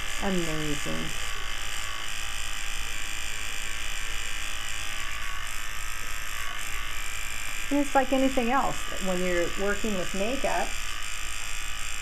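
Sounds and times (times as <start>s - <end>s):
electric fan running: 0.0s - 12.0s.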